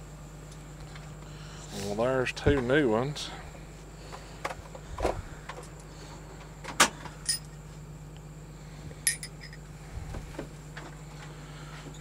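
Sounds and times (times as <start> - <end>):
metal tools clinking: 7.3 - 7.5, 9.1 - 9.6.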